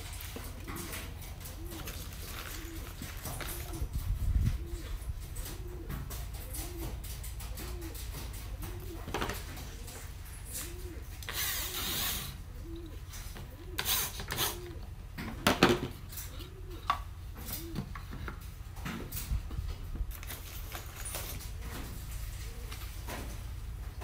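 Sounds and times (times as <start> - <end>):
wooden knocks and clatter: 5.3 - 9.6.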